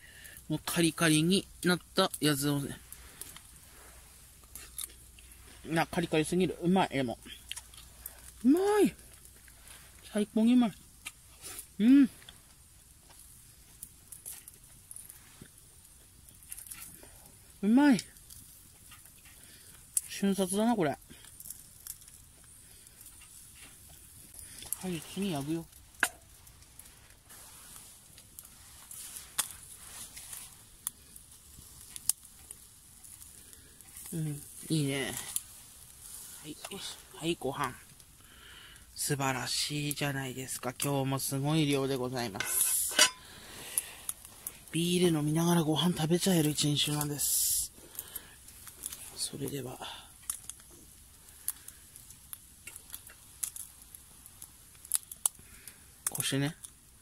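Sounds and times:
meat sizzling on grill: 0.0s - 57.0s
sharp pops and crackles: 0.0s - 57.0s
chopsticks clicking on grate: 42.4s - 43.2s.

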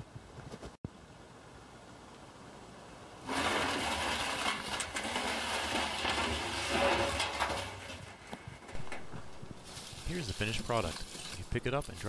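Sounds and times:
charred wood crunching and rustling: 3.2s - 12.0s.

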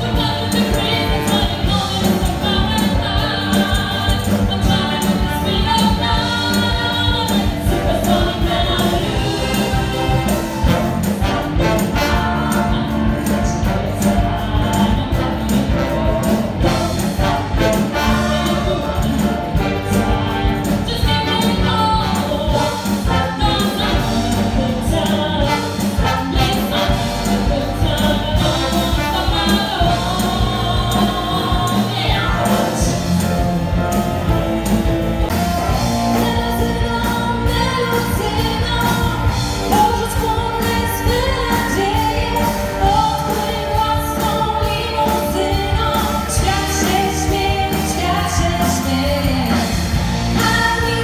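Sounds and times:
women singing together: 0.0s - 11.1s, 36.0s - 49.8s
rock band with horns: 0.0s - 51.0s.

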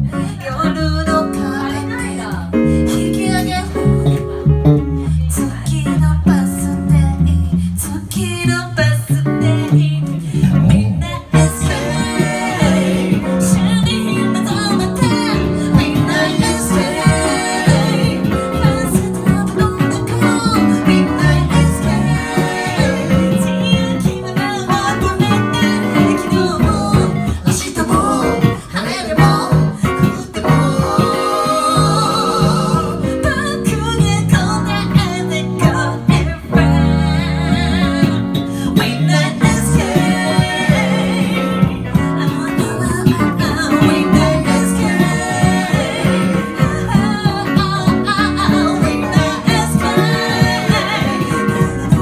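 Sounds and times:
electric guitar: 0.0s - 52.0s
women singing: 0.0s - 52.0s
strummed acoustic guitar: 11.4s - 52.0s.

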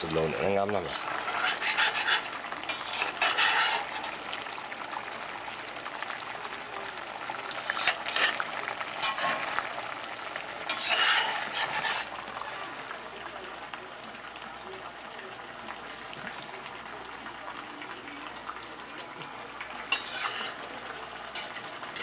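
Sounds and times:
food sizzling: 0.0s - 22.0s
spatula scraping frying pan: 0.4s - 4.3s, 7.5s - 13.0s, 19.8s - 22.0s.

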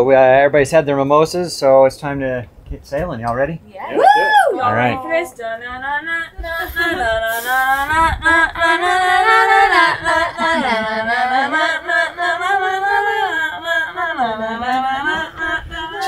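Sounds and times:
people singing unaccompanied: 4.5s - 16.0s.

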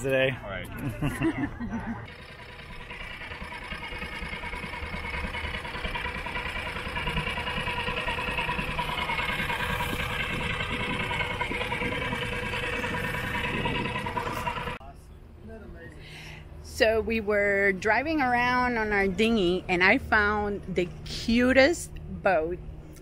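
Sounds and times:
outboard motor running: 0.0s - 14.8s.

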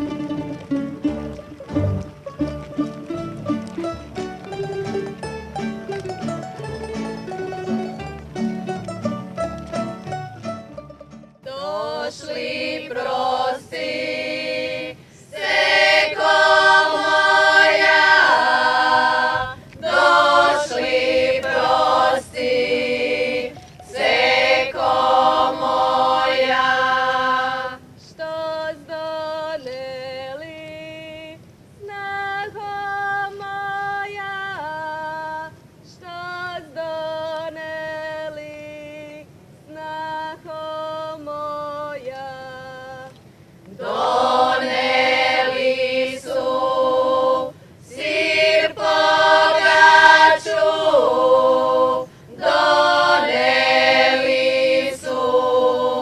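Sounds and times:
women singing unaccompanied: 11.4s - 56.0s.

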